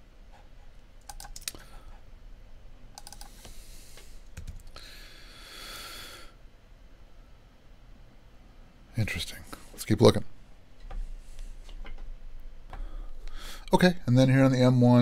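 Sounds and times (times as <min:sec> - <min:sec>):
keyboard typing: 0:01.0 - 0:01.6, 0:03.0 - 0:03.3, 0:04.4 - 0:04.8.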